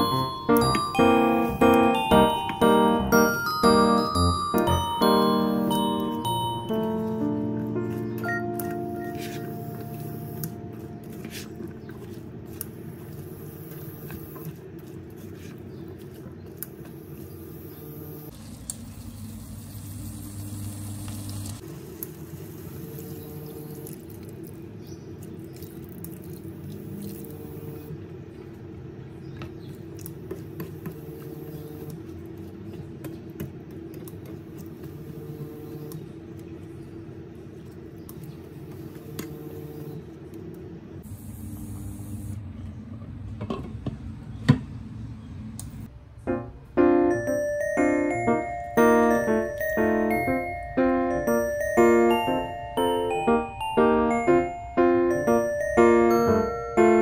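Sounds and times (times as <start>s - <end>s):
water pouring: 18.3s - 21.6s
wet food squishing: 23.8s - 27.5s.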